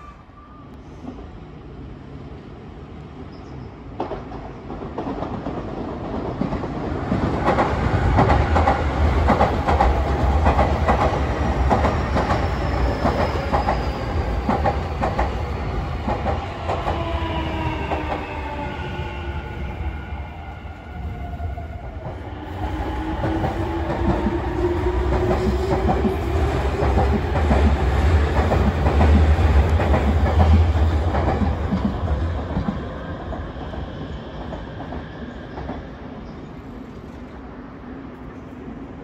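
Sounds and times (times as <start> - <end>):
train wheels clacking over rail joints: 4.0 - 15.4.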